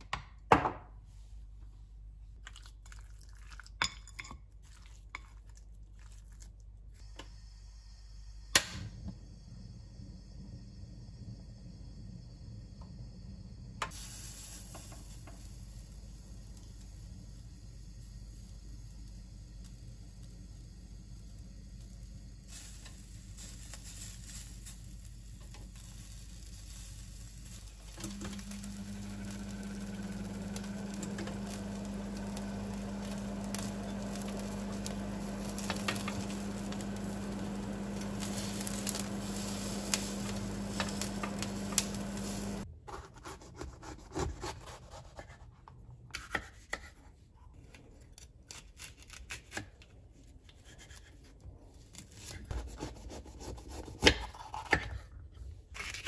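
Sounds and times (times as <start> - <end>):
chicken sizzling on grill: 13.8 - 42.7
extractor fan humming: 27.4 - 42.7.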